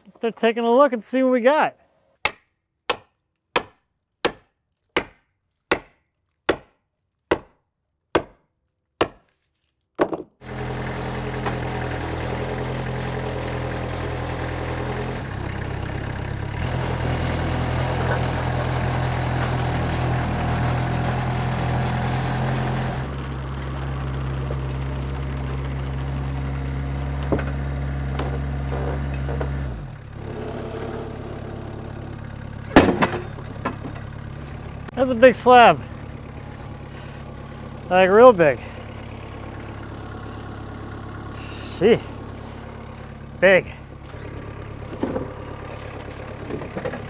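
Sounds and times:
sawmill engine running: 10.4 - 47.0.

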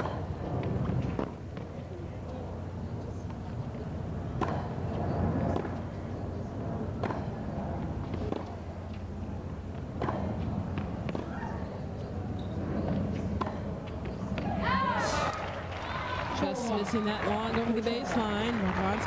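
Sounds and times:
crowd murmur: 0.0 - 19.0
tennis ball struck by racket: 4.3 - 6.2, 6.8 - 11.4, 13.2 - 14.6.

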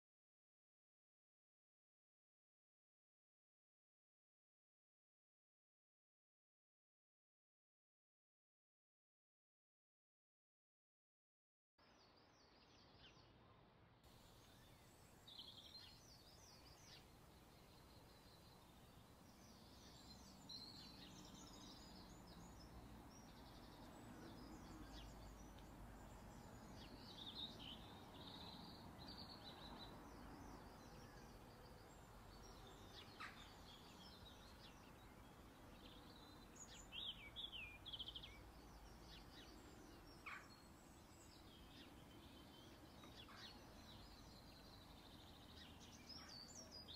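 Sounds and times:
faint bird chirping: 11.8 - 46.9
low steady background noise: 11.8 - 46.9.

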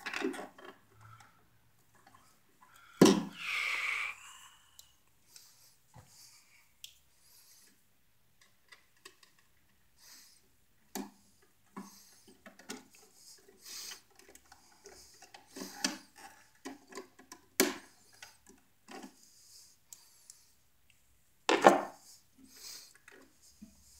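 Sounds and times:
clicks and scrapes of wire handling: 8.4 - 9.8, 10.9 - 19.2.

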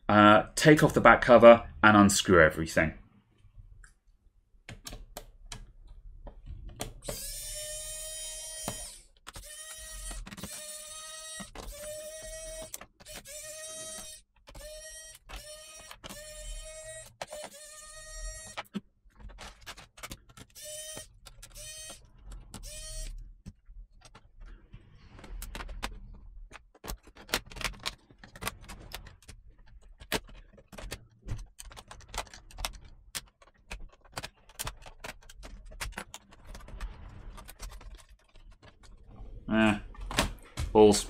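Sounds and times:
screws and plastic case rattling: 6.3 - 39.2
electric screwdriver whirring: 7.0 - 18.6, 20.5 - 23.2.

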